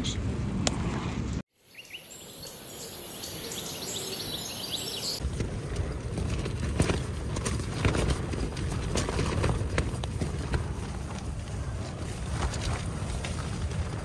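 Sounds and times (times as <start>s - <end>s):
tent fabric flapping in wind: 0.4s - 14.0s
wind hissing: 1.6s - 6.1s.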